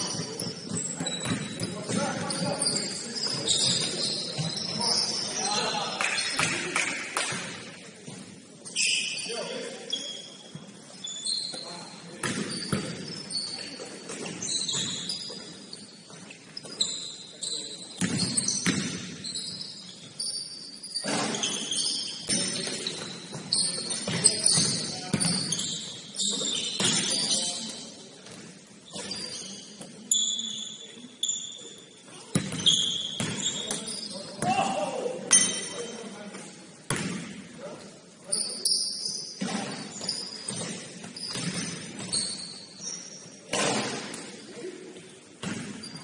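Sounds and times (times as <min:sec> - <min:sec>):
sneakers squeaking on court: 0:00.0 - 0:06.7, 0:07.3 - 0:37.4, 0:38.0 - 0:46.0
basketball bouncing: 0:00.2 - 0:02.4, 0:12.2 - 0:13.1, 0:18.0 - 0:19.1, 0:24.1 - 0:25.5, 0:32.3 - 0:33.5, 0:36.9 - 0:37.4, 0:39.4 - 0:42.2
basketball thumps: 0:12.2 - 0:12.9.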